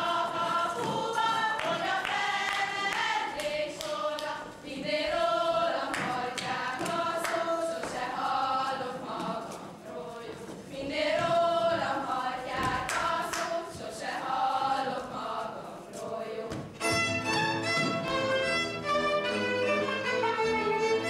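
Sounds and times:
girls singing unaccompanied: 0:00.0 - 0:18.3
string band playing dance tune: 0:16.7 - 0:21.0.

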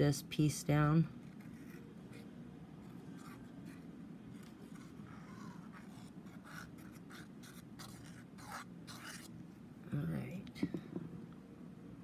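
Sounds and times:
glue applicator scratching on card: 0:01.2 - 0:09.4.

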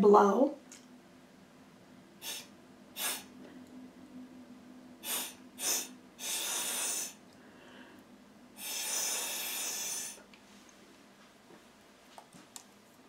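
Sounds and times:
person blowing through straw: 0:02.2 - 0:03.3, 0:05.0 - 0:07.2, 0:08.6 - 0:10.2.

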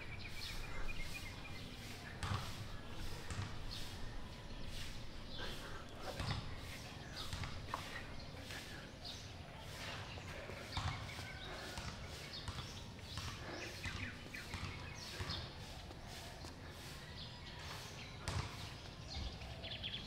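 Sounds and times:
soft thumps and footsteps: 0:01.0 - 0:04.1, 0:04.8 - 0:16.6.

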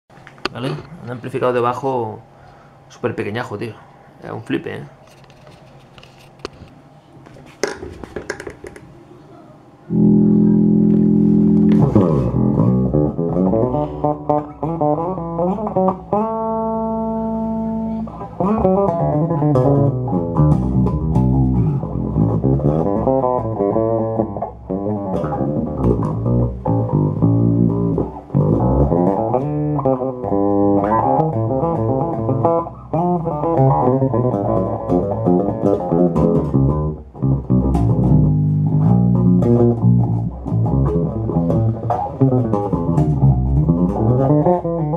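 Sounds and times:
electric bass guitar plucked: 0:09.9 - 0:44.9.

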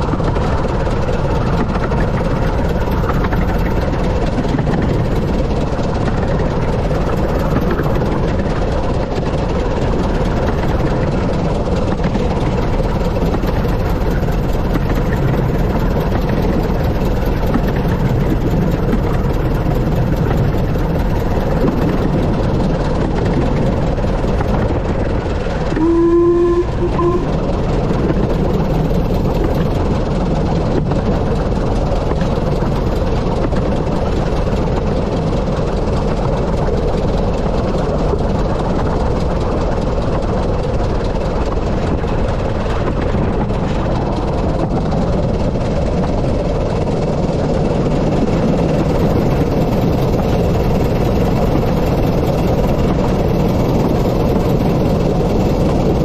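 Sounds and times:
steam locomotive rumbling: 0:00.0 - 0:56.0
steam whistle blast: 0:25.7 - 0:27.4.

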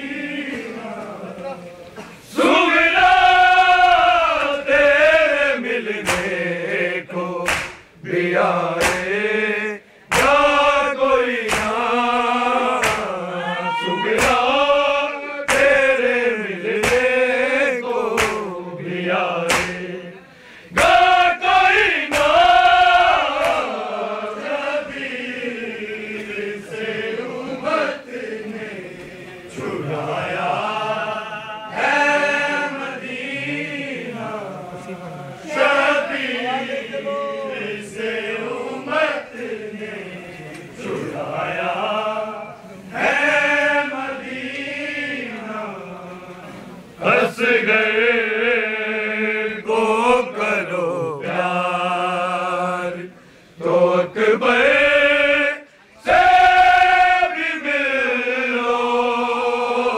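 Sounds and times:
men chanting a lament: 0:00.0 - 0:59.9
hands slapping chests: 0:06.0 - 0:06.4, 0:07.4 - 0:07.9, 0:08.8 - 0:09.1, 0:10.1 - 0:10.4, 0:11.4 - 0:11.8, 0:12.8 - 0:13.2, 0:14.2 - 0:14.4, 0:15.5 - 0:15.8, 0:16.8 - 0:17.1, 0:18.2 - 0:18.4, 0:19.5 - 0:19.8, 0:20.7 - 0:21.1, 0:22.1 - 0:22.4, 0:23.4 - 0:23.6.

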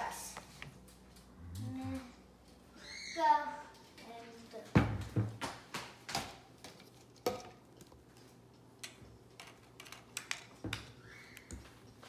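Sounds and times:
plastic cups knocking and clicking: 0:04.8 - 0:08.1, 0:08.8 - 0:11.7.

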